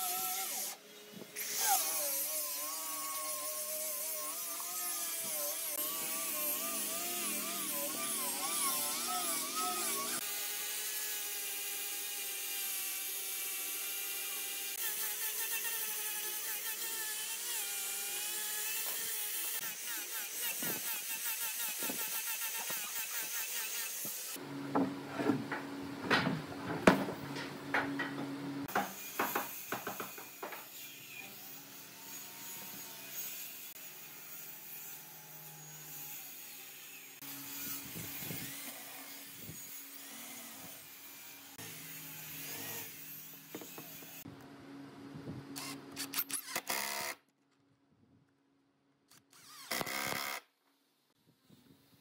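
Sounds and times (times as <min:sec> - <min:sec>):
angle grinder sanding wood: 0:01.4 - 0:24.4
impact driver driving a screw: 0:49.1 - 0:50.4.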